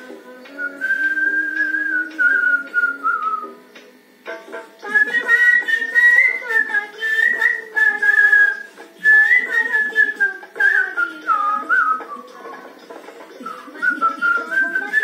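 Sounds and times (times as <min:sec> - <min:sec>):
man whistling a melody: 0:00.6 - 0:03.6, 0:04.9 - 0:12.2.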